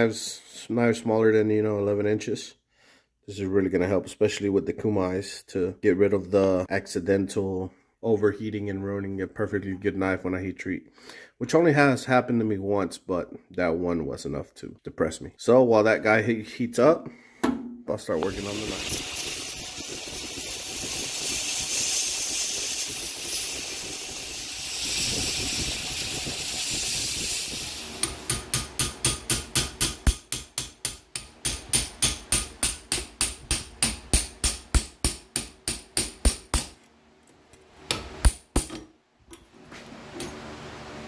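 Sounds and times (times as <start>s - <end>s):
belt grinder grinding steel: 18.2s - 28.6s.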